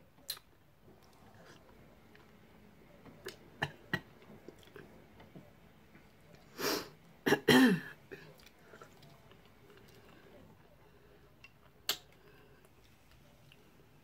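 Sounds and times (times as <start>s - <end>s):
person clearing throat: 7.3s - 8.2s.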